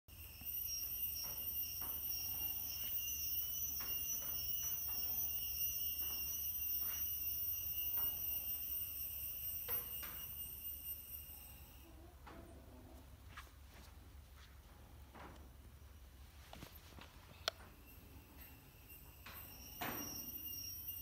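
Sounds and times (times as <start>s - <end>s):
high-pitched insect chirring: 0.1s - 11.9s, 17.3s - 21.0s.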